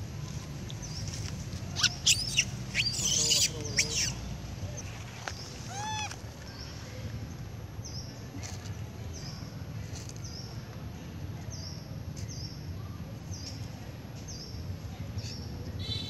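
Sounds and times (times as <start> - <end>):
monkeys screeching: 1.8 - 4.2, 5.6 - 6.2.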